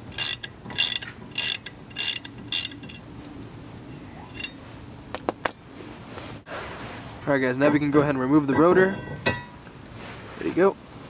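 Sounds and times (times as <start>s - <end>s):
ratchet wrench clicking: 0.1s - 3.0s.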